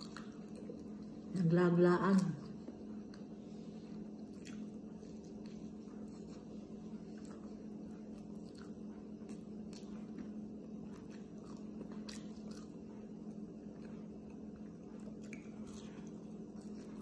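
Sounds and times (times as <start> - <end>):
steady low hum: 0.0 - 17.0
chewing with wet mouth smacks: 2.2 - 17.0.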